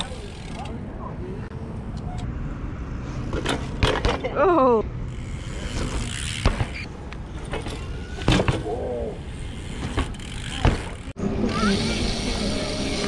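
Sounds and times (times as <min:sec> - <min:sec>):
bike tyres rolling on concrete: 0:05.1 - 0:11.2.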